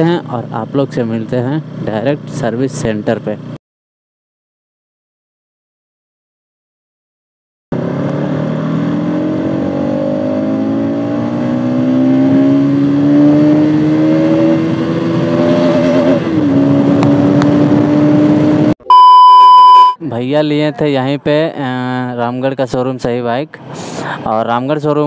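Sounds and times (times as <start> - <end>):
motorcycle engine accelerating: 7.8 - 18.8.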